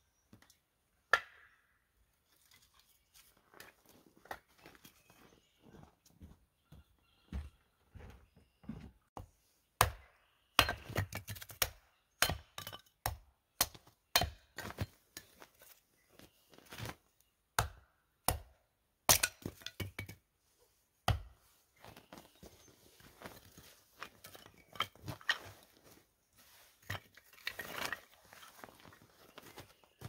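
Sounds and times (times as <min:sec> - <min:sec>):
hatchet chopping wood: 0:01.1 - 0:01.5, 0:09.8 - 0:14.8, 0:17.6 - 0:20.2, 0:21.0 - 0:21.4.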